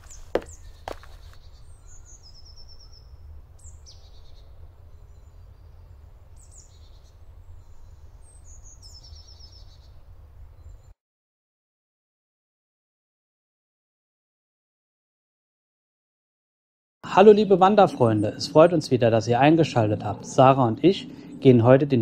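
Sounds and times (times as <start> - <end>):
songbirds singing: 0.0 - 10.9, 17.1 - 22.0
low steady rumble: 17.3 - 22.0.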